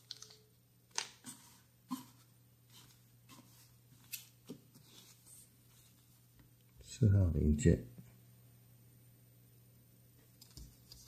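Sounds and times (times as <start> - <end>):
small parts clicking and rustling: 0.0 - 1.2
plastic bag rustling: 0.0 - 6.1
low steady hum: 0.0 - 11.0.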